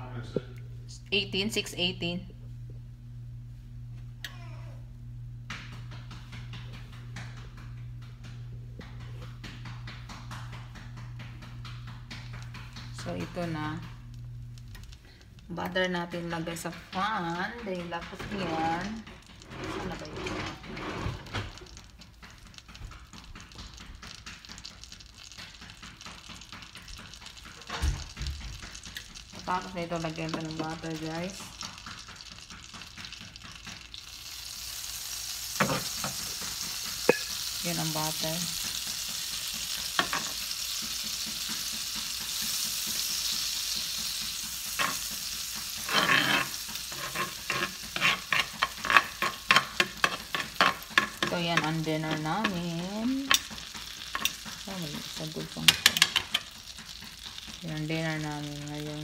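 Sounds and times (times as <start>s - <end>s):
butter sizzling in a frying pan: 8.8s - 59.0s
metal tongs tapping pan: 45.9s - 56.5s.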